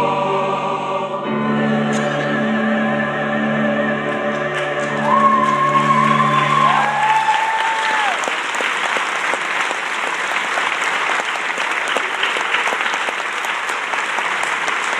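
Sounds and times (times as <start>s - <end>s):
choir singing held chord: 0.0s - 7.0s
audience applauding: 4.3s - 14.9s
whooping cheer: 5.0s - 8.4s.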